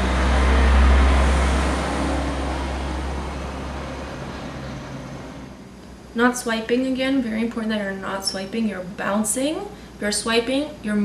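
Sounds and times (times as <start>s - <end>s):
vehicle passing by: 0.0s - 5.7s.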